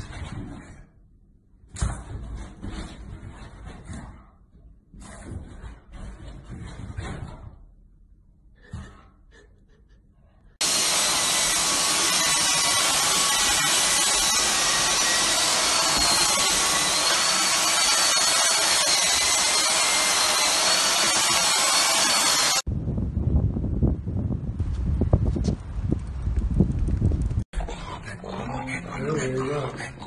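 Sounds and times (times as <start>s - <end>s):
vacuum cleaner motor whine: 10.6s - 22.6s.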